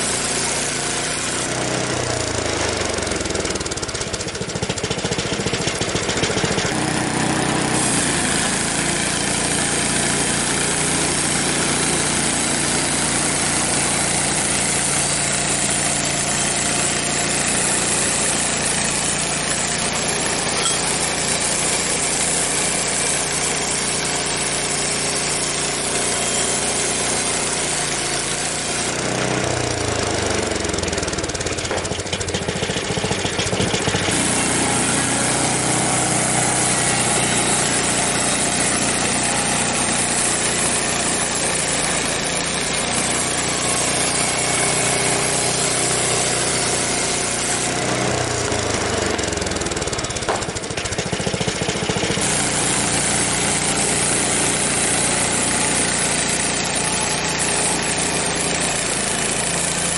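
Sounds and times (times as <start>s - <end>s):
bandsaw mill engine: 0.0s - 59.9s
saw blade cutting log: 0.0s - 59.9s.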